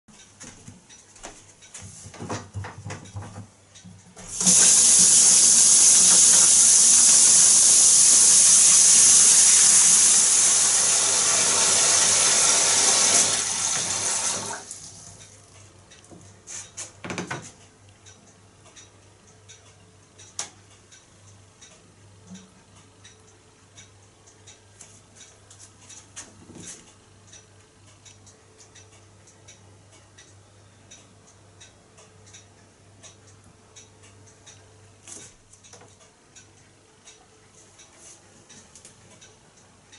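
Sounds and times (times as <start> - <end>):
faint knocks and ticks: 0.1 - 4.4, 15.1 - 39.9
water pouring into bathtub: 4.4 - 15.2.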